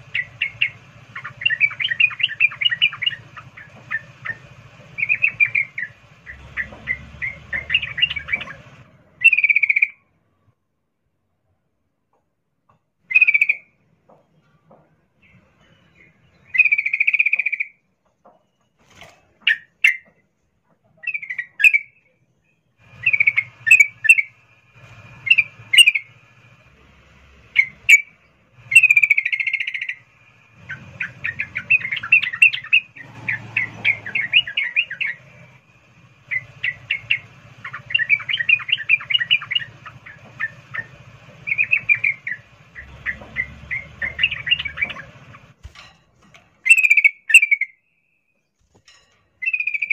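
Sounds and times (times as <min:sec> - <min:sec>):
bulbul calling: 0:00.0 - 0:10.0, 0:13.1 - 0:13.8, 0:16.0 - 0:17.8, 0:22.8 - 0:26.7, 0:27.4 - 0:45.6, 0:46.6 - 0:47.9, 0:49.4 - 0:49.9.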